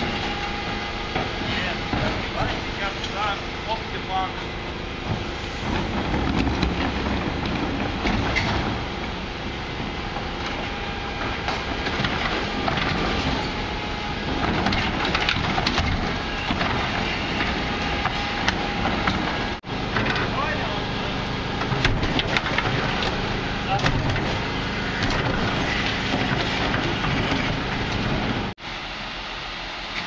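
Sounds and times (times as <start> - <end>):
rubbish rattling into hopper: 0.0 - 28.6
diesel truck engine running: 0.0 - 30.0
bin and lift clanking: 10.0 - 20.8, 21.5 - 28.5.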